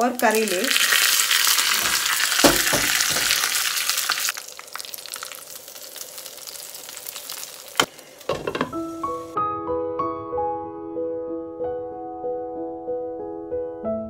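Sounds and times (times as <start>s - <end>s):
hot oil sizzling: 0.0s - 9.4s
sharp knocks: 2.4s - 3.4s.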